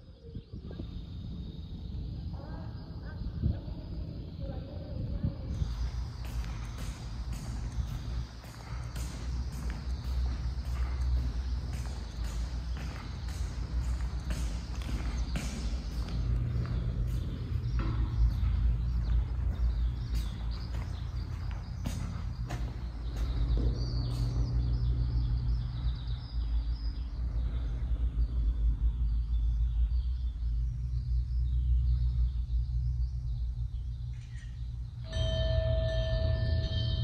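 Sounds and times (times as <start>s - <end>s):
low drone: 0.0s - 37.0s
sustained ringing tone: 35.0s - 37.0s.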